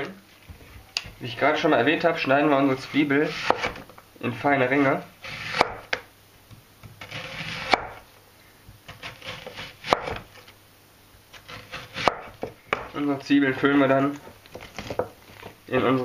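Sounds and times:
knife scraping through onion: 0:02.7 - 0:03.8, 0:04.7 - 0:05.9, 0:06.8 - 0:08.0, 0:08.9 - 0:10.5, 0:11.3 - 0:15.6.

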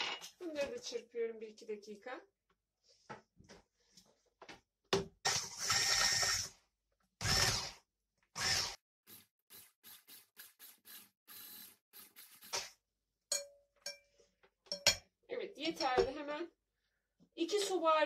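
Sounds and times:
electric hand mixer in batter: 0:05.3 - 0:06.5, 0:07.2 - 0:07.8, 0:08.4 - 0:12.7.

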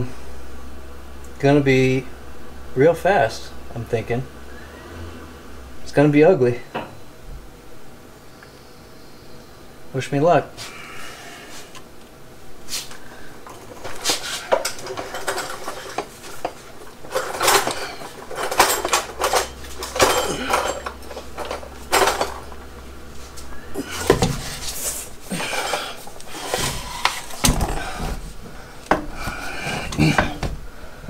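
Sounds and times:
metal transmission clanking and scraping: 0:13.4 - 0:28.4.

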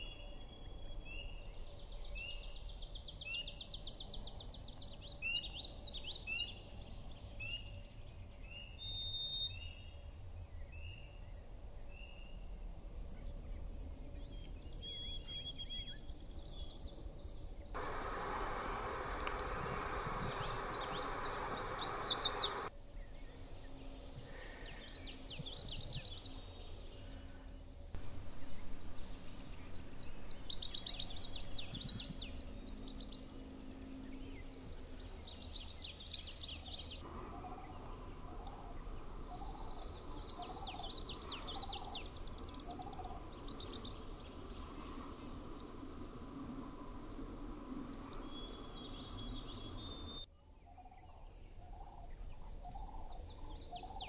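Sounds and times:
warbler singing high notes: 0:17.8 - 0:22.7, 0:28.0 - 0:35.8, 0:36.5 - 0:50.3.

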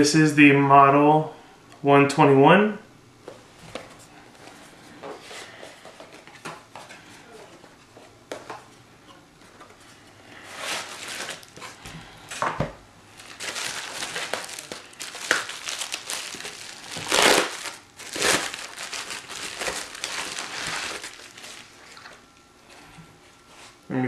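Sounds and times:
bubble wrap crinkling: 0:10.4 - 0:11.8, 0:13.1 - 0:22.3.

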